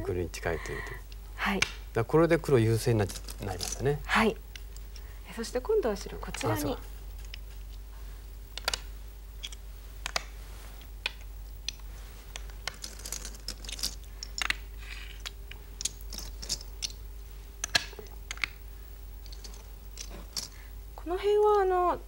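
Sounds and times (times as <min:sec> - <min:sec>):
faint steady hum: 0:00.0 - 0:22.0
stones clicking on game board: 0:11.0 - 0:17.0.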